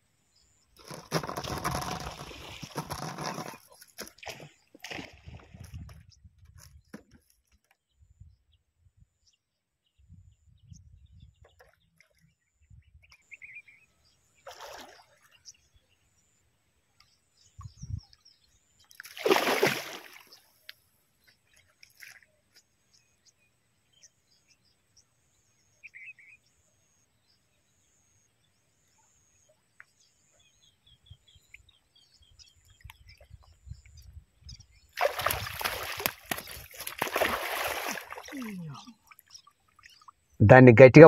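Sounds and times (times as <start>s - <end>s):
water sloshing and splashing: 0.8s - 6.0s, 19.0s - 20.4s, 35.0s - 40.3s
faint bird chirps: 20.2s - 36.7s, 37.8s - 40.2s.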